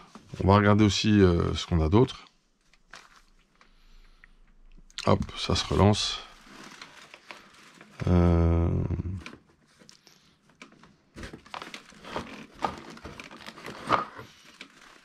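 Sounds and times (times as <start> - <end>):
packaging crinkling and rustling: 2.6 - 3.8, 5.1 - 8.4, 9.2 - 15.0.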